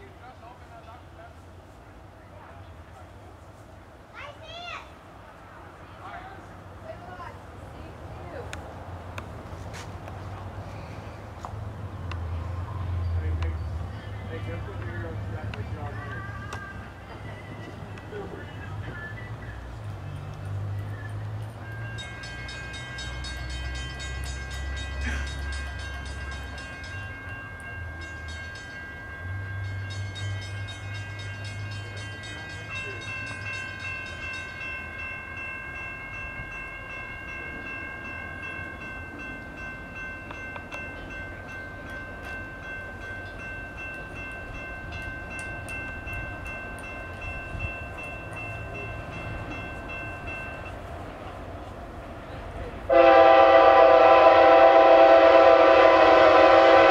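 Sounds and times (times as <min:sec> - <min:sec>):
crossing warning bell ringing: 0:12.0 - 0:51.7, 0:52.9 - 0:56.9.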